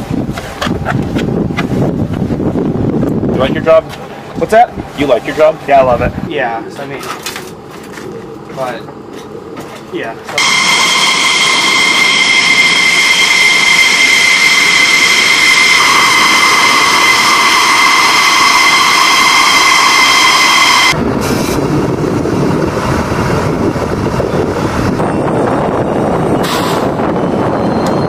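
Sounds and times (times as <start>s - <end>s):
jet engine turbine whine: 10.2s - 28.0s
low rough rushing noise: 10.4s - 24.2s.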